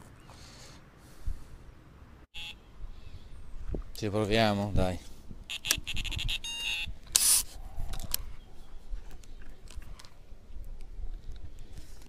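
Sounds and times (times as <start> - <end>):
brief beeping tone: 5.5 - 6.9.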